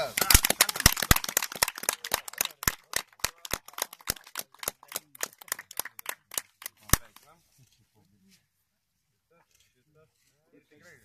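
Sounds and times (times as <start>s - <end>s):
people clapping: 0.0s - 7.2s.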